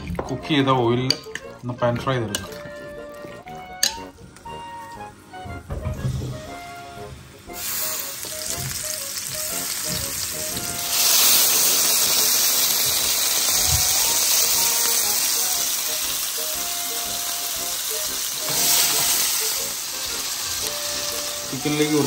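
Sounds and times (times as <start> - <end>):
chicken sizzling in hot oil: 6.8 - 22.0.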